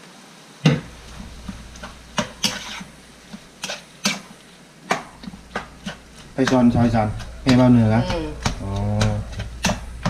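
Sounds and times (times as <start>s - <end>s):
spatula scraping frying pan: 0.9s - 4.4s, 5.0s - 8.0s.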